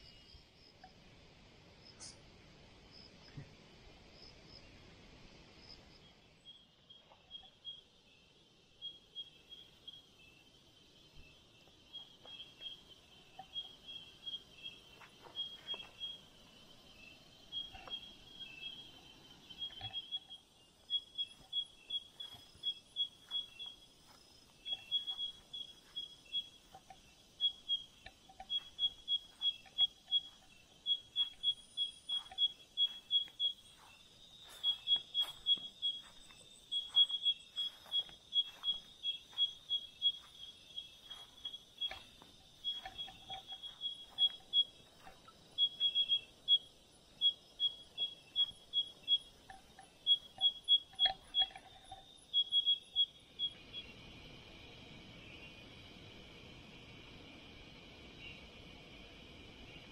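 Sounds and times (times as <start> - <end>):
crickets chirping rapidly: 0.0 - 59.9
insects trilling: 5.6 - 59.9.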